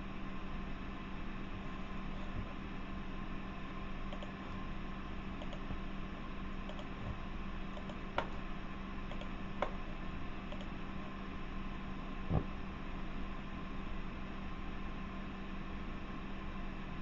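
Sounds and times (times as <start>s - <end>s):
steady background hum: 0.0s - 17.0s
faint clicks: 4.1s - 4.4s, 5.4s - 5.7s, 6.7s - 7.0s, 9.1s - 9.8s, 10.5s - 10.7s
sharp clicks: 4.1s - 4.4s, 5.4s - 5.7s, 6.7s - 7.0s, 7.7s - 8.4s, 9.1s - 9.8s, 10.5s - 10.7s.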